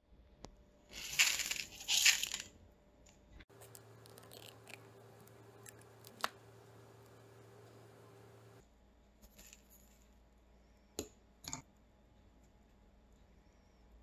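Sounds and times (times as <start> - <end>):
faint steady hum: 0.4 - 14.0
rice pouring into plastic bowl: 1.0 - 2.5.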